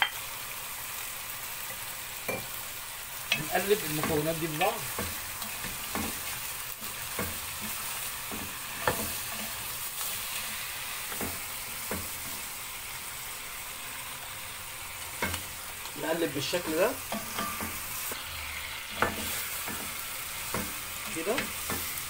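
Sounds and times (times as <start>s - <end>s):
food sizzling in a pot: 0.0s - 22.0s
wooden spoon knocking and scraping pot: 3.3s - 9.6s.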